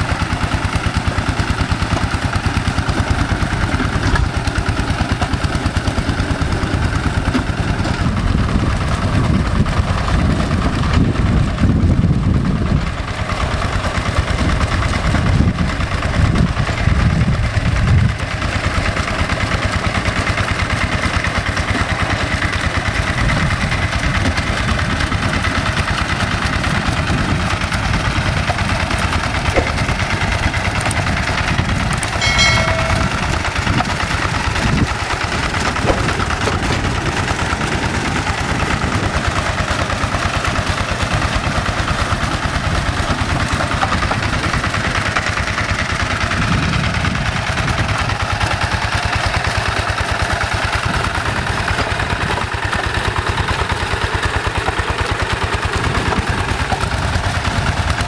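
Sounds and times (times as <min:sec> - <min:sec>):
diesel engine running under load: 0:00.0 - 0:58.0
plough pulling through wet mud: 0:00.0 - 0:58.0
high-pitched tone: 0:32.2 - 0:33.7.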